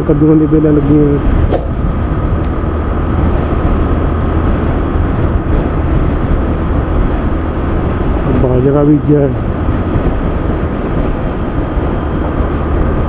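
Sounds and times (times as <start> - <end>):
wind on microphone: 0.0 - 13.0
motorcycle engine running: 1.3 - 7.9.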